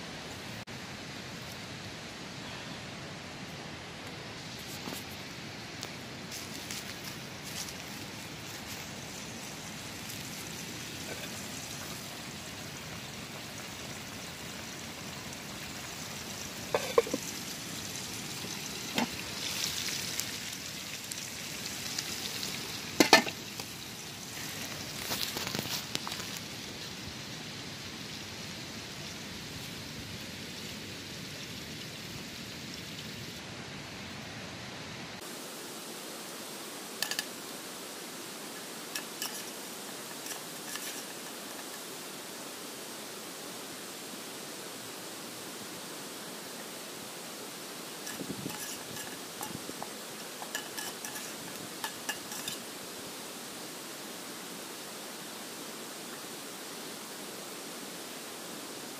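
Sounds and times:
stream rushing: 0:00.0 - 0:31.3, 0:32.0 - 0:58.9
metal pots and lids clinking: 0:16.7 - 0:17.3, 0:23.0 - 0:23.4, 0:37.0 - 0:37.3, 0:39.0 - 0:39.5, 0:40.1 - 0:41.7, 0:50.4 - 0:52.7.

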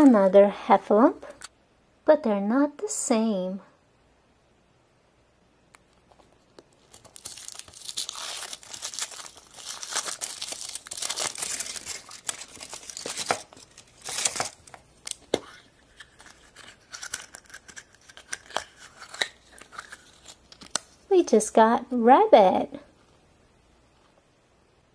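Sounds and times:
foil wrapper crinkling and tearing: 0:06.6 - 0:21.0.

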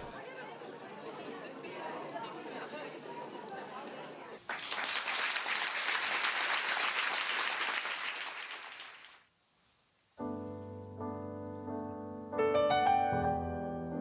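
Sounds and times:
audience applauding: 0:04.4 - 0:09.2
grand piano playing: 0:10.3 - 0:14.0.

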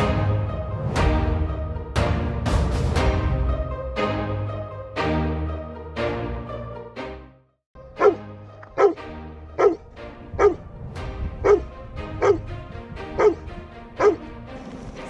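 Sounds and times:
dog barking: 0:08.0 - 0:10.7, 0:11.4 - 0:12.5, 0:13.1 - 0:14.2.

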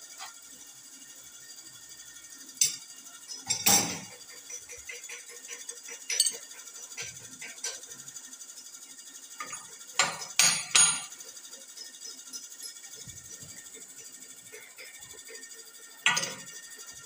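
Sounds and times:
steel bar striking metal gear: 0:06.0 - 0:07.8, 0:09.4 - 0:11.2.

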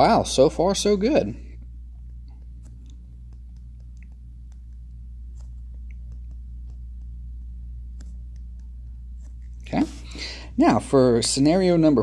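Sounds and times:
steady low hum: 0:00.0 - 0:12.0
stylus tapping on tablet screen: 0:02.0 - 0:09.7.

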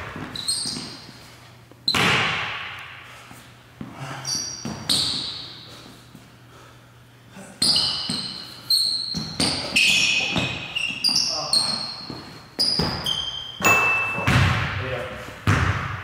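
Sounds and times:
sneakers squeaking on hardwood: 0:00.0 - 0:02.4, 0:03.8 - 0:06.2, 0:07.6 - 0:14.7
basketball bouncing on hardwood floor: 0:09.1 - 0:09.7, 0:10.3 - 0:10.7, 0:12.1 - 0:13.2, 0:14.2 - 0:14.7, 0:15.4 - 0:16.0.

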